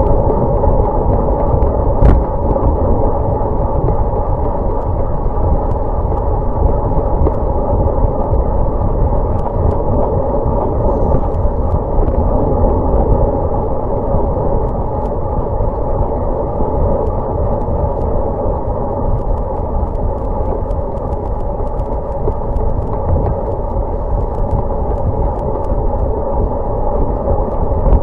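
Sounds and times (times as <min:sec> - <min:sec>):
bicycle tyre and road rumble: 0:00.0 - 0:28.0
wind rushing over microphone: 0:00.0 - 0:28.0
faint ticks: 0:03.8 - 0:12.2, 0:17.0 - 0:28.0.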